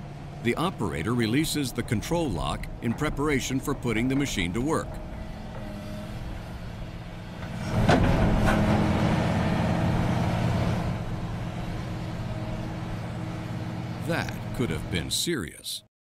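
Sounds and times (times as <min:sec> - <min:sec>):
excavator engine running: 0:00.0 - 0:15.6
sharp clunks: 0:07.4 - 0:08.8.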